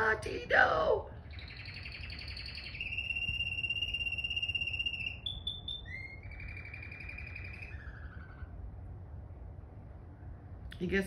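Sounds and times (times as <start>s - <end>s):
canary singing trills: 0.0s - 8.6s.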